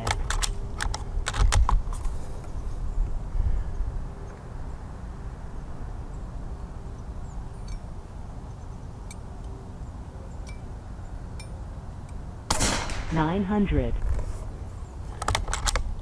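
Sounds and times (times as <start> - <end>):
low outdoor background: 0.0 - 16.0
air rifle shot: 12.5 - 13.3.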